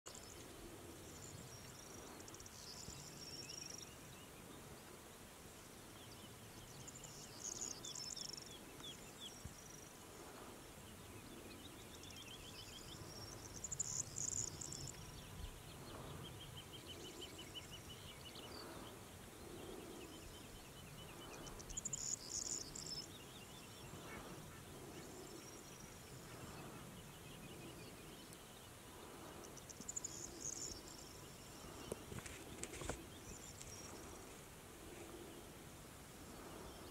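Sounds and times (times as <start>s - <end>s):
songbird singing: 0.0s - 36.9s
insect trills: 12.6s - 15.1s, 29.2s - 34.4s.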